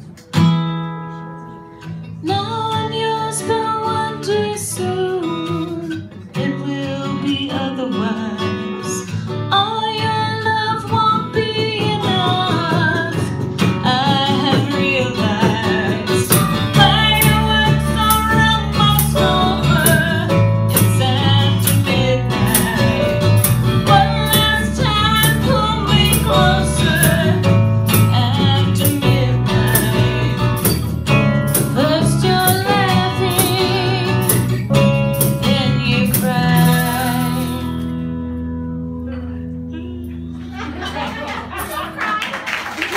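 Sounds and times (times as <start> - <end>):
strummed acoustic guitar: 0.0 - 40.8
woman singing lead: 2.2 - 30.9, 31.5 - 34.6, 35.2 - 37.8
percussion beat: 15.4 - 37.8
electric bass: 16.1 - 40.5.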